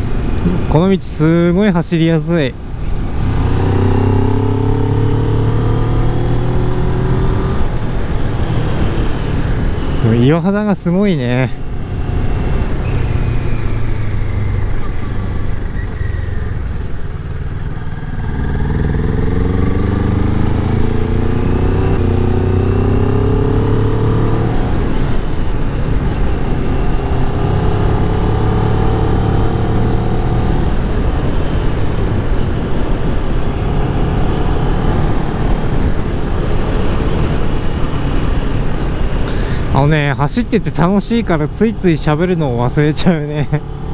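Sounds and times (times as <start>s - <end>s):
rushing wind: 0.0s - 43.9s
motorcycle engine revving: 3.0s - 10.0s, 11.7s - 39.7s.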